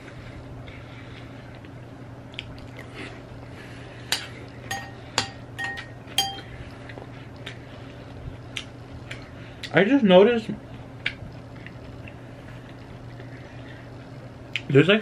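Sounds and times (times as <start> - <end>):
soft chewing: 0.0 - 3.6, 6.5 - 9.8, 10.6 - 14.7
spoon clinking against bowl: 4.7 - 6.5.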